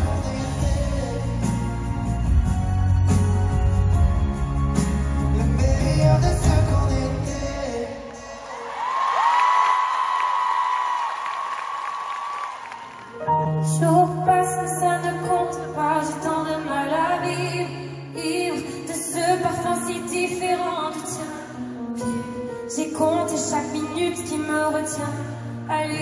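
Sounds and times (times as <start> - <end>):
people singing: 0.0 - 1.8
bass line: 0.0 - 7.8
live pop concert music: 0.0 - 26.0
woman singing: 13.6 - 26.0.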